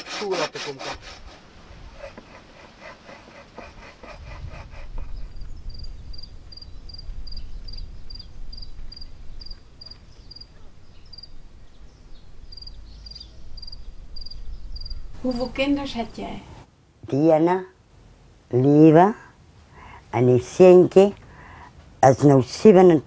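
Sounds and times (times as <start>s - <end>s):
hand saw cutting a board: 0.0s - 5.2s
cricket chirping: 5.7s - 11.4s, 12.5s - 15.6s.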